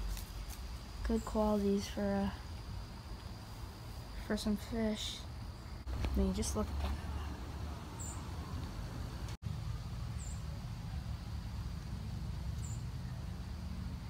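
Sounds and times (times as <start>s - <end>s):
low outdoor rumble: 0.0s - 14.0s
small bird chirps: 8.0s - 8.6s, 10.2s - 10.6s, 12.5s - 13.3s.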